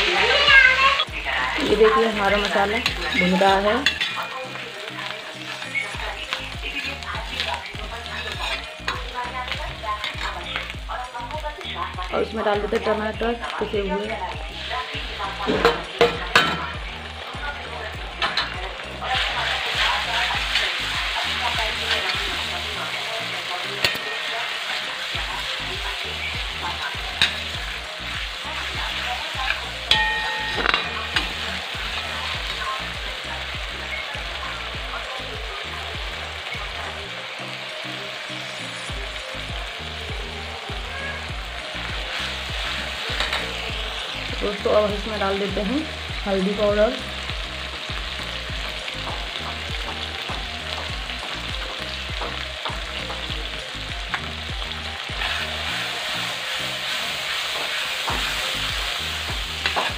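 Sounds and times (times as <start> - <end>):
paste sizzling in hot oil: 0.0 - 59.9
metal spatula scraping a pan: 6.7 - 9.1, 28.9 - 32.6, 55.1 - 58.4.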